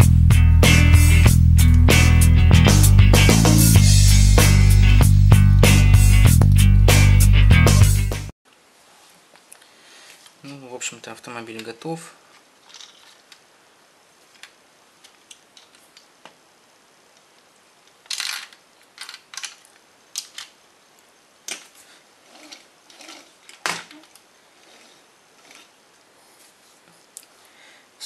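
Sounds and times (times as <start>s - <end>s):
plastic bricks clicking and rattling: 12.6s - 13.4s, 18.0s - 20.6s
toy car rolling on laminate floor: 12.6s - 13.4s.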